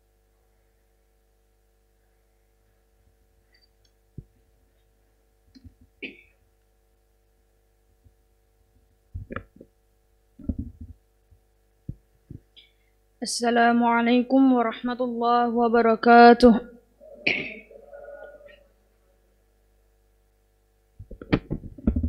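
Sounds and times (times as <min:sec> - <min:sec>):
faint electrical hum: 0:00.0 - 0:22.0
microphone handling thumps: 0:09.1 - 0:09.7, 0:10.4 - 0:11.0, 0:21.0 - 0:22.0.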